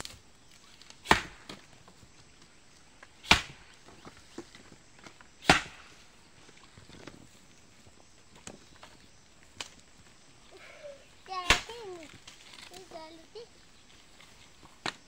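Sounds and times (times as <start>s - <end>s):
axe splitting firewood: 0.0s - 2.0s, 3.0s - 6.0s, 11.4s - 12.8s.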